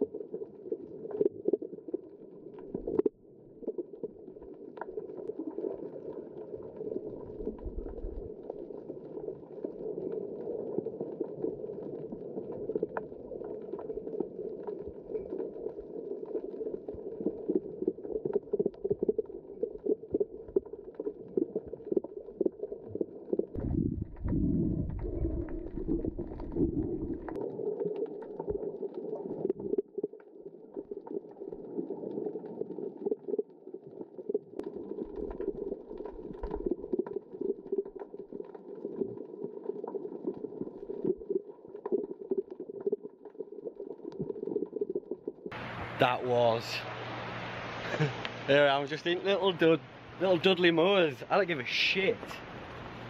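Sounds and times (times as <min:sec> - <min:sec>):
small clicks and crackles: 0:00.0 - 0:23.6, 0:24.2 - 0:45.6
muffled underwater water noise: 0:00.0 - 0:53.0
deep rumbling: 0:23.6 - 0:27.4.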